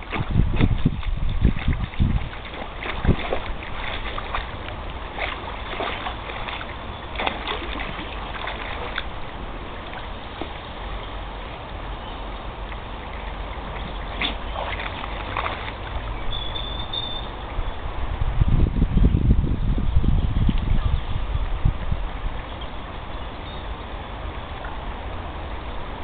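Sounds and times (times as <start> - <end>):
water splashing around dog: 0.0 - 11.6, 12.6 - 17.3
wind rumble on microphone: 0.0 - 26.0.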